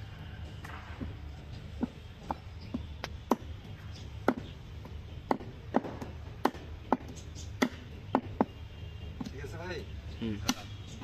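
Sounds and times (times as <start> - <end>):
knife chopping meat on wood: 1.8 - 3.6, 4.2 - 4.5, 5.2 - 8.6.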